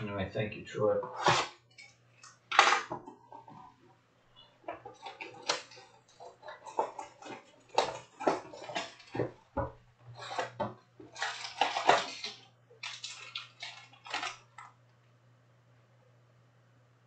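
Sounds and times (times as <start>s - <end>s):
foil wrappers crinkling: 4.7s - 9.4s, 10.2s - 14.8s.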